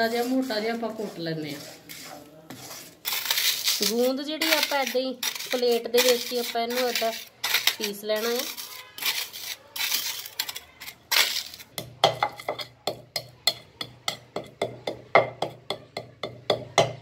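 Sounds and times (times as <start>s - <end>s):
steel bowl crunching on plate: 2.8s - 12.8s
pestle pounding in mortar: 11.5s - 17.0s.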